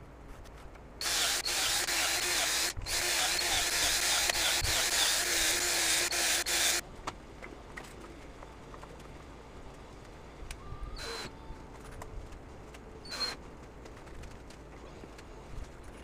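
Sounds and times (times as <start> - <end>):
cordless drill boring wood: 1.0 - 6.8.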